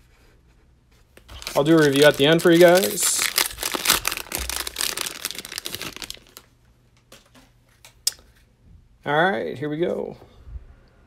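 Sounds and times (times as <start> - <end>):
plastic wrapper crinkling and tearing: 1.2 - 6.5.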